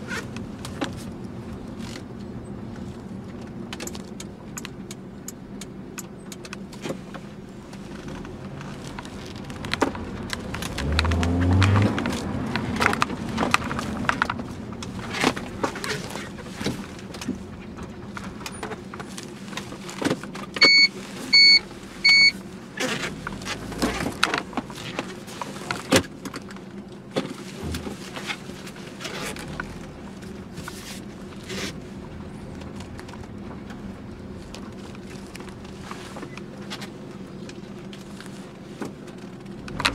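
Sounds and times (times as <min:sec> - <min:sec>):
car engine hum: 0:00.0 - 0:39.9
electronic chime beeps: 0:20.6 - 0:22.4.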